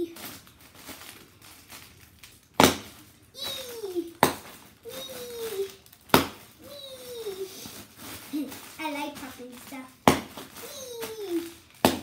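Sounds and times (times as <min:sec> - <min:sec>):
child vocal sounds: 0:03.4 - 0:04.2, 0:04.8 - 0:05.8, 0:06.6 - 0:09.8, 0:10.6 - 0:11.6.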